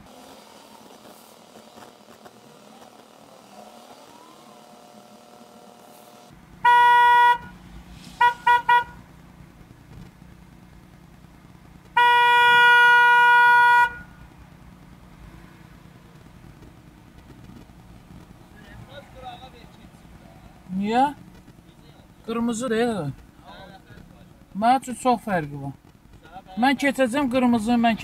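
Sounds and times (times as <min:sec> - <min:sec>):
car horn honking: 0:06.6 - 0:09.1, 0:11.9 - 0:14.2.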